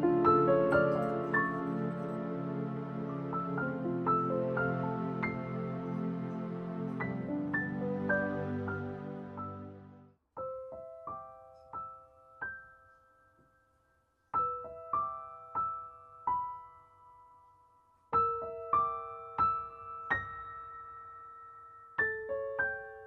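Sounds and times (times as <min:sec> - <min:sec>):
fuller music piece: 0:00.0 - 0:13.6
soft piano melody: 0:00.0 - 0:23.0.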